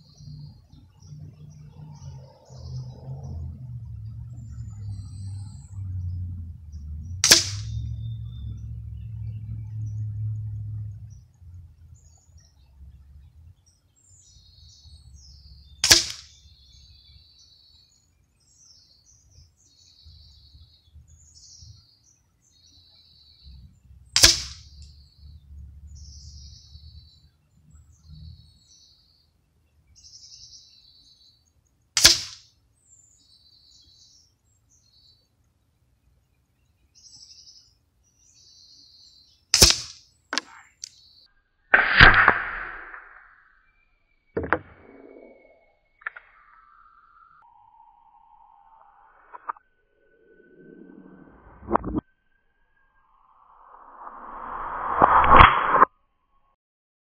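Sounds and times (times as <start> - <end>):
birds chirping: 0.0 - 31.8, 32.6 - 41.7
low rumble: 2.5 - 11.8, 53.2 - 55.8
air pistol shots: 7.2 - 7.7, 15.8 - 16.4, 24.2 - 24.6, 32.0 - 32.4, 39.6 - 40.6, 41.7 - 43.1.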